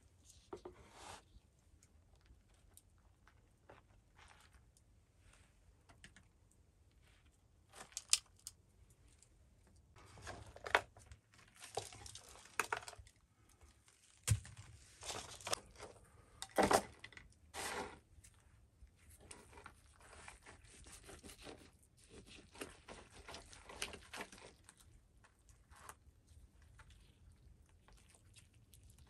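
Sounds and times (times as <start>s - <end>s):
baked crust crunching and crackling: 10.2s - 16.1s, 19.2s - 29.0s.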